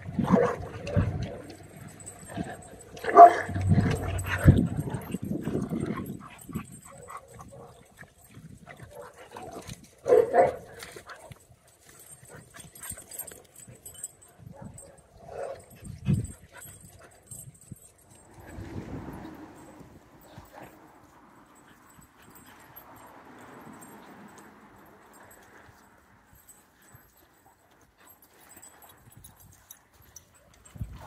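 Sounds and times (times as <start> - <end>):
dogs barking: 0.2 - 7.8, 8.9 - 10.7.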